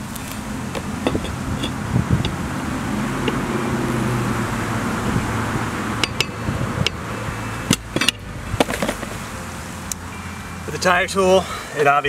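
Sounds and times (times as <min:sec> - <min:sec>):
tire knocks and clicks: 0:00.0 - 0:02.6, 0:03.2 - 0:03.6, 0:05.9 - 0:07.1, 0:07.7 - 0:09.3.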